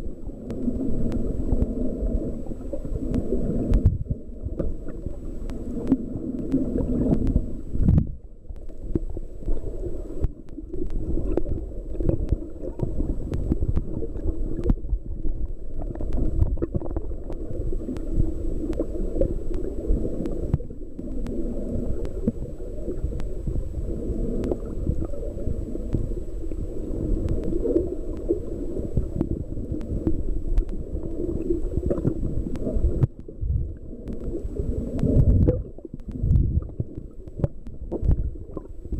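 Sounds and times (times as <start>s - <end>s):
gurgling water: 0.0s - 38.9s
muffled underwater rumble: 0.0s - 38.9s
small clicks: 0.4s - 23.4s.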